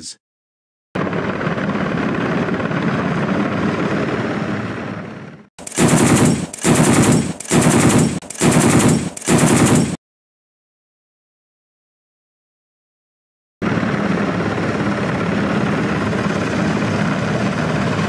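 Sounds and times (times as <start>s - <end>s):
helicopter noise: 1.0s - 10.0s, 13.6s - 18.0s
machine gun firing bursts: 5.6s - 10.0s.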